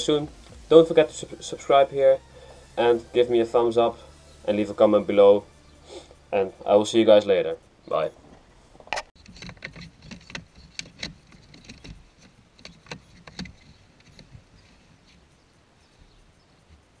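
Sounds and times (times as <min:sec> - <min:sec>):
sharp clicks and knocks: 0:08.8 - 0:15.2.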